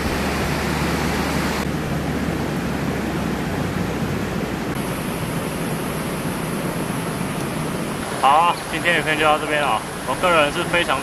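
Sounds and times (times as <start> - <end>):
creek water rushing over stones: 0.0 - 1.7.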